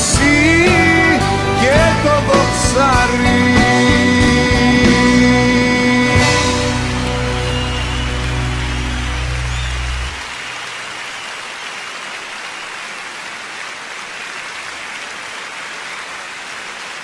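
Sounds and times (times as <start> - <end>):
band playing final chord: 0.0 - 10.4
large audience applauding: 6.2 - 17.0.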